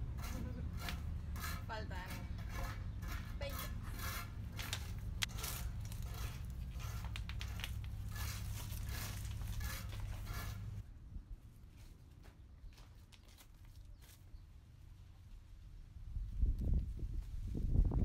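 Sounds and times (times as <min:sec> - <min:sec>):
soil rustling: 0:01.6 - 0:10.8.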